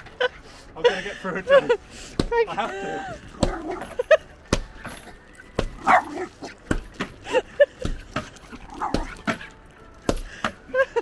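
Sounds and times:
axe striking a log: 5.5s - 7.2s
small dog barking and yipping: 5.8s - 6.6s.

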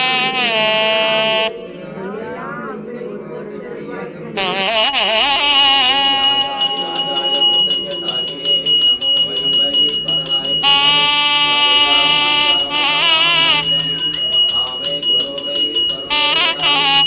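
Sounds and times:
high held melody: 4.4s - 17.0s
hand bell ringing rhythmically: 4.7s - 17.0s.

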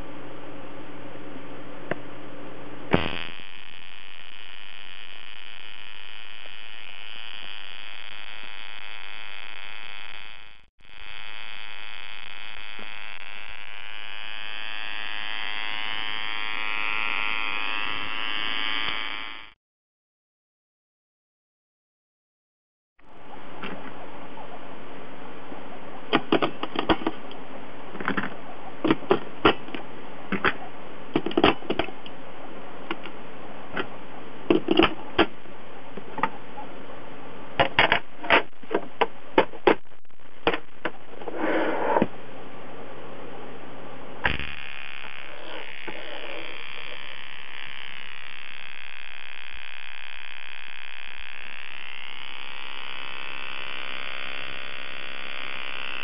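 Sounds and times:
high-pitched electrical whine: 0.0s - 19.6s, 37.1s - 56.0s.

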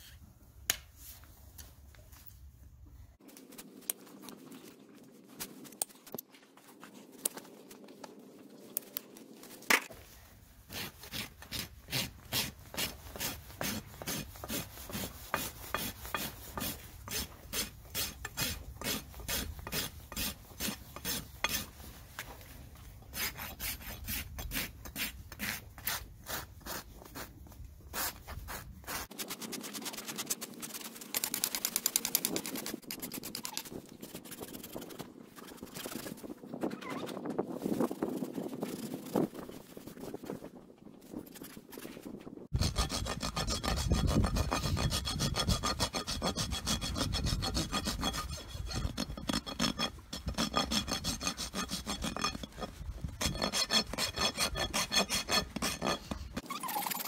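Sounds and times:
hoof rasp filing: 10.7s - 22.3s, 23.1s - 27.3s, 42.5s - 56.5s.

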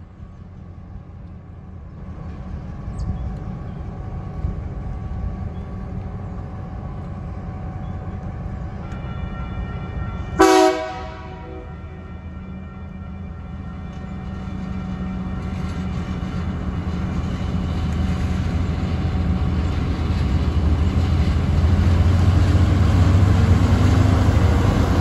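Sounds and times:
locomotive engine rumble: 0.0s - 25.0s
loud train horn blast: 8.7s - 15.6s.

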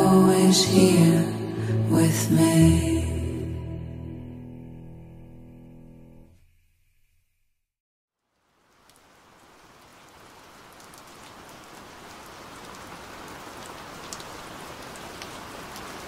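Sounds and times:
rain falling: 8.2s - 16.0s
raindrop ticks: 8.3s - 16.0s.

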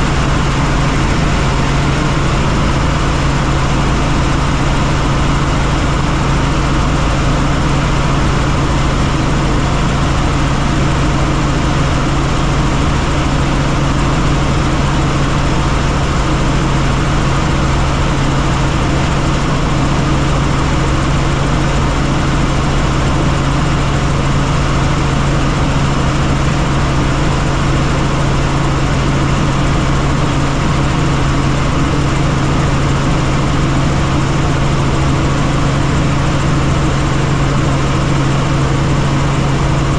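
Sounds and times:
helicopter engine and rotors: 0.0s - 39.9s.

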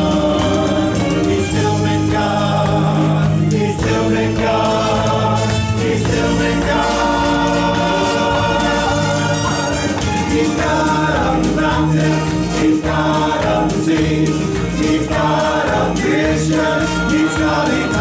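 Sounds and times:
choir singing gospel in harmony: 0.0s - 18.0s.

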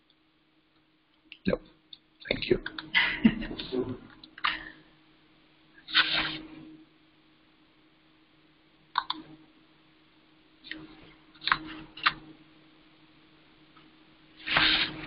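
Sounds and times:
faint steady hum: 0.0s - 15.0s
mouse and keyboard clicks: 9.0s - 9.2s, 11.4s - 12.2s.

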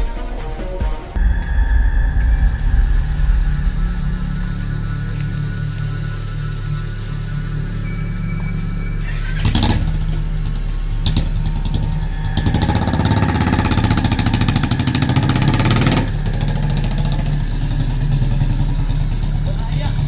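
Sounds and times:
low steady drone: 1.0s - 20.0s
engine revving: 1.2s - 20.0s.

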